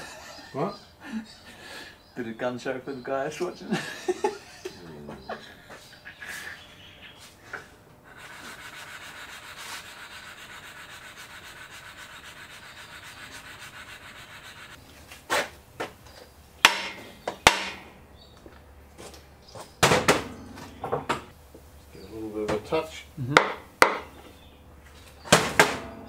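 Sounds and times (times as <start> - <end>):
metal scraping on sandpaper: 8.0 - 15.5
sharp knocks: 16.6 - 17.9, 19.8 - 21.3, 23.4 - 24.1, 25.3 - 26.0.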